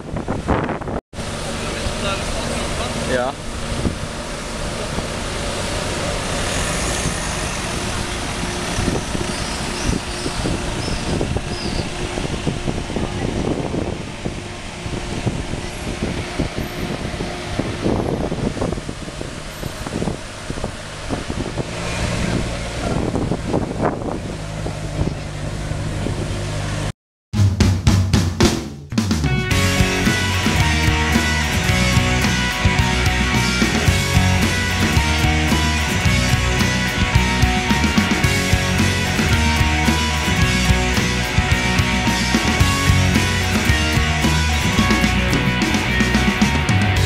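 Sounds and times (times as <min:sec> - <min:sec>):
street noise: 0:00.0 - 0:47.0
car engine at low revs: 0:00.2 - 0:26.9.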